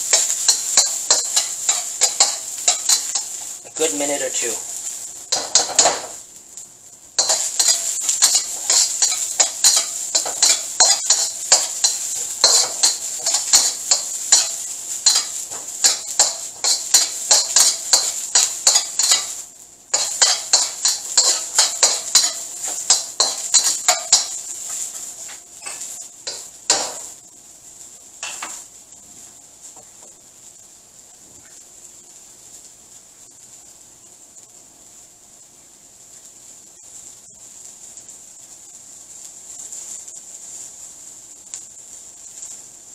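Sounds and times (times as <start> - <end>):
metal spatula scraping a wok: 0.1 - 4.5, 5.3 - 6.2, 7.2 - 27.1.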